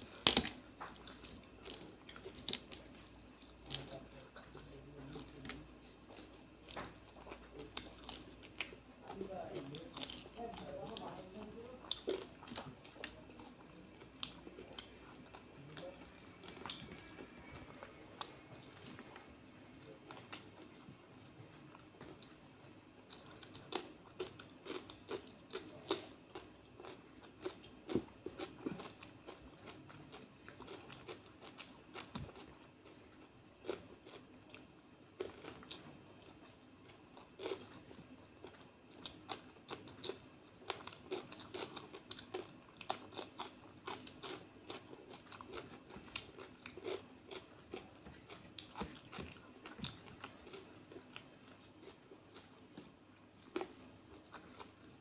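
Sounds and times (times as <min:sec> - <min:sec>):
wet chewing: 0:00.0 - 0:55.0
crisp crunches of fried food: 0:23.1 - 0:55.0.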